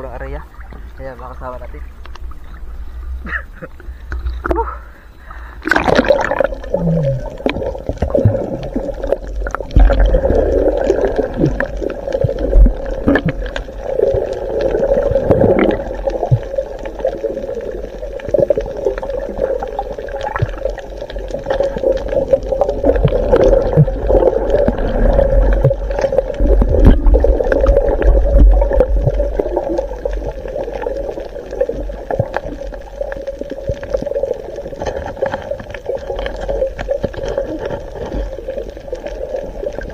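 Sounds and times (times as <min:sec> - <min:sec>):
steady low hum: 0:00.0 - 0:30.6
muffled underwater gurgling: 0:00.0 - 0:39.9
underwater rumble: 0:00.0 - 0:39.9
splash: 0:05.6 - 0:39.9.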